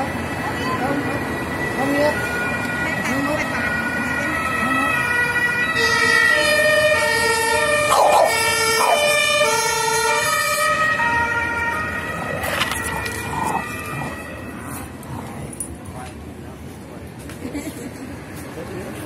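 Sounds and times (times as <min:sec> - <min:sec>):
two-tone emergency siren: 0:00.0 - 0:15.0.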